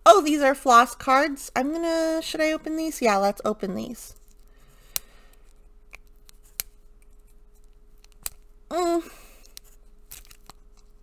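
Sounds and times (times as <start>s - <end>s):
person humming: 8.7s - 9.3s.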